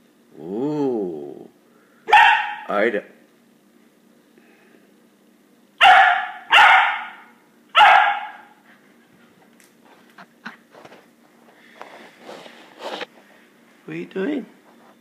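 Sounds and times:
puppy barking: 2.1s - 2.7s, 5.8s - 8.6s.

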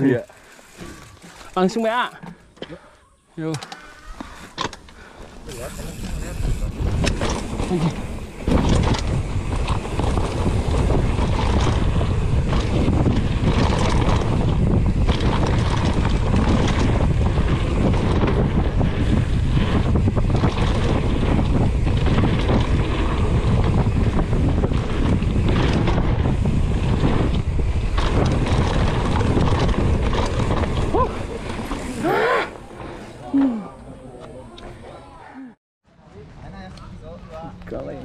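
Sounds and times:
wind rushing over microphone: 5.3s - 34.8s.

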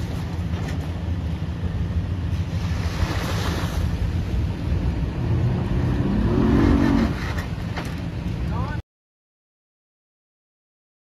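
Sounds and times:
outboard motor running: 0.0s - 6.0s.

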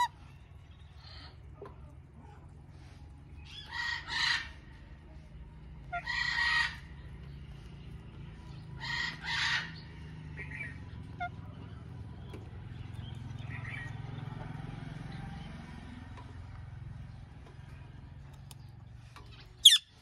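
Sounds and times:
parakeet squawks: 3.5s - 4.6s, 5.9s - 7.0s, 8.8s - 9.8s, 19.6s - 20.0s.

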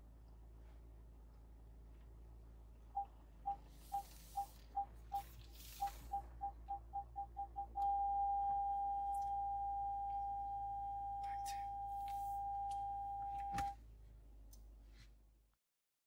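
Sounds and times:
parking sensor beeps: 2.9s - 13.8s.

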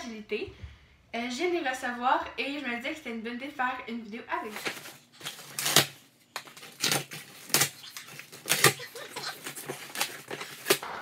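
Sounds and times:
cardboard ripping and scraping: 4.6s - 11.0s.

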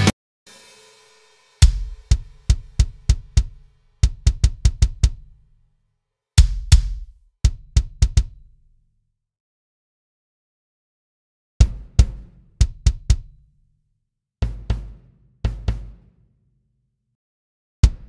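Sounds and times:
kick drum hits: 1.6s - 5.3s, 6.4s - 8.6s, 11.6s - 13.4s.

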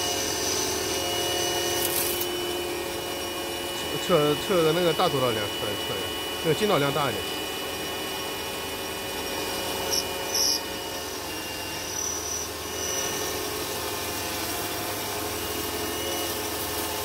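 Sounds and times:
lathe motor humming: 0.0s - 17.0s
sharp high-pitched bursts: 9.8s - 13.5s.

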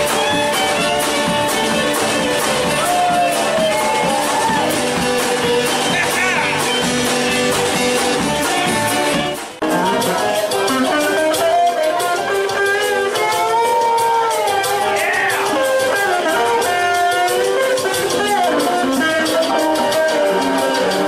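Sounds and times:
lead electric guitar: 0.0s - 21.0s
rock and roll band playing: 0.0s - 21.0s.

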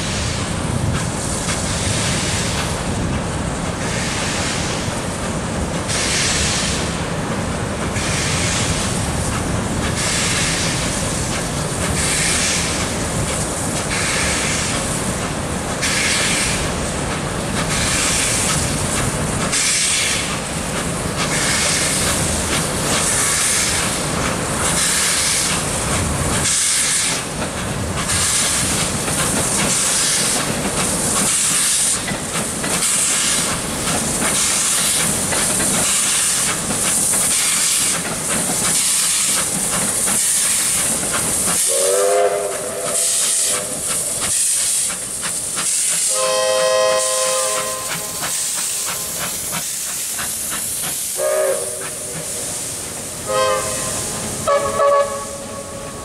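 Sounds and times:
steam locomotive exhaust beat: 0.0s - 56.0s
steam whistle blasts: 41.6s - 43.8s, 46.0s - 48.9s, 51.1s - 52.4s, 53.2s - 56.0s.

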